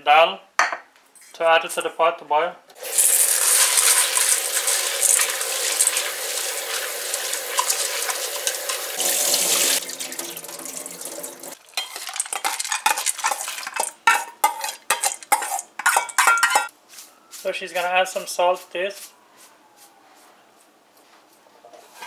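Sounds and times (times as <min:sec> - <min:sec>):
metal spoon scraping steel bowl: 0:11.8 - 0:16.7.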